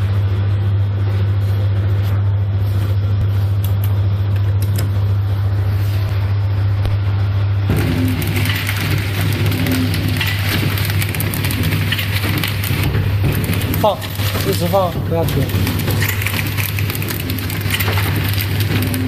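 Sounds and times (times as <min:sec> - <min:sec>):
packing machine humming: 0:00.0 - 0:19.0
loud rattling: 0:07.7 - 0:19.0.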